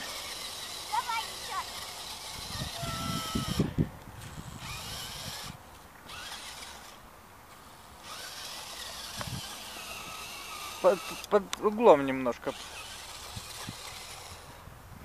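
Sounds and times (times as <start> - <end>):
rc car motors whirring: 0.0 - 14.7.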